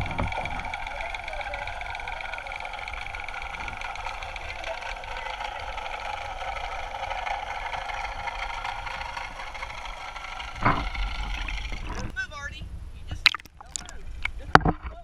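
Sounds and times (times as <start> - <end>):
underwater hum with tones: 0.0 - 12.2
water rush breaking surface: 13.3 - 14.1.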